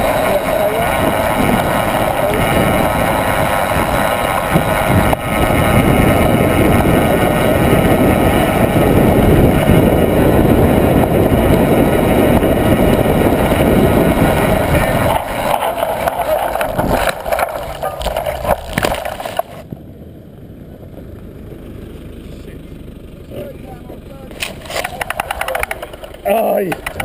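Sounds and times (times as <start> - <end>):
wind buffeting microphone: 0.0 - 19.7
bike tyres rumbling on track: 0.0 - 27.0.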